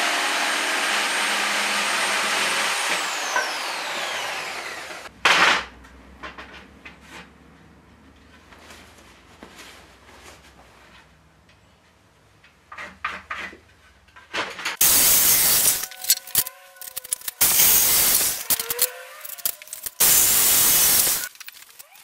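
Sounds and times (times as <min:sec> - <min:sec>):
reciprocating saw cutting wood: 0:00.0 - 0:05.1, 0:14.8 - 0:21.3
saw motor whine: 0:00.0 - 0:05.1, 0:14.8 - 0:21.3.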